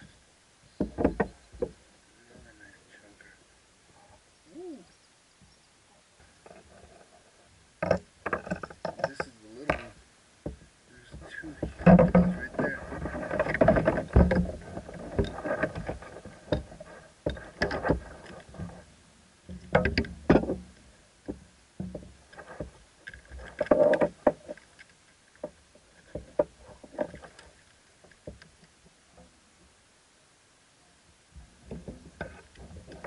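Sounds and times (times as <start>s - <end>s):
fishing gear knocking and rustling: 6.4s - 29.3s, 31.4s - 33.0s.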